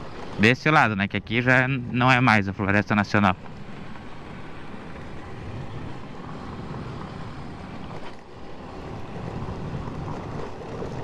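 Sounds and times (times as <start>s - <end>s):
wind noise on microphone: 5.2s - 11.0s.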